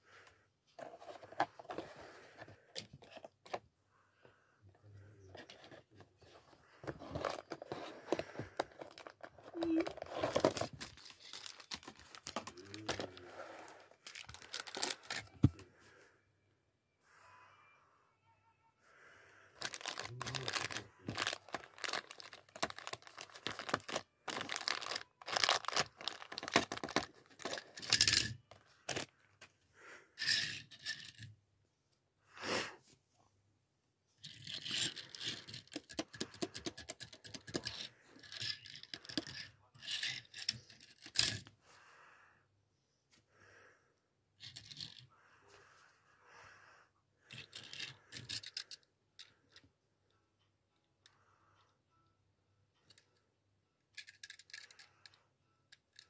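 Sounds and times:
plastic wrapper crinkling: 8.8 - 13.1, 14.0 - 15.5, 19.6 - 28.3.

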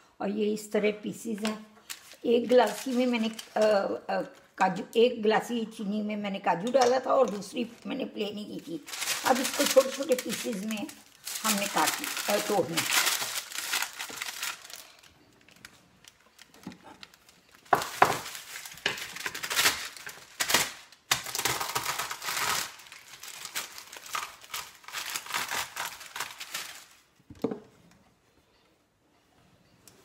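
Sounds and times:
paper crinkling and rustling: 1.8 - 3.6, 8.8 - 27.2
brittle being crushed by hand: 8.9 - 27.0.

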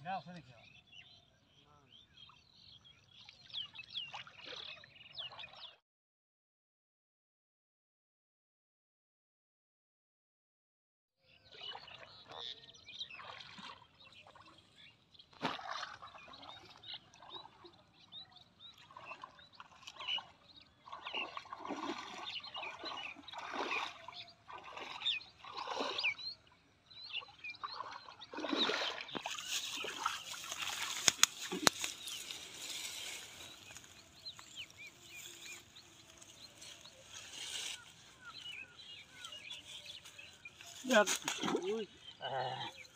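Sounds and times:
water splashing and sloshing: 3.1 - 5.8, 11.4 - 42.8.

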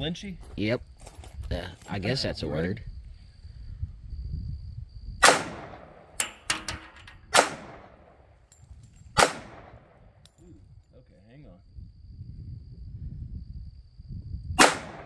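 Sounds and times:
pistol shots echoing: 5.2 - 6.6, 7.3 - 8.2, 9.2 - 10.1, 14.6 - 15.0.

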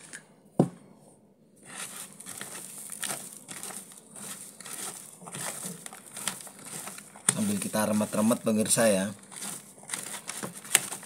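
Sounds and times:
gritty crunchy rustle of salt: 1.6 - 11.0.

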